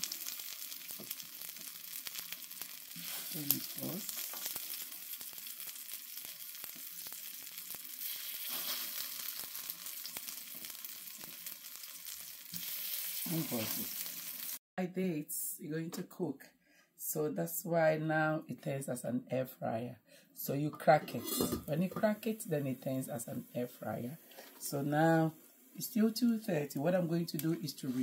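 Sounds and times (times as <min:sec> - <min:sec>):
plantain sizzling in oil: 0:00.0 - 0:14.6, 0:21.8 - 0:28.0.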